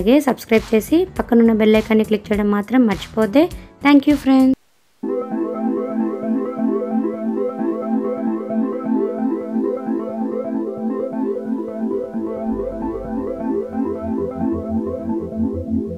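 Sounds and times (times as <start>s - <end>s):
repeated pitched notes: 5.0s - 15.9s.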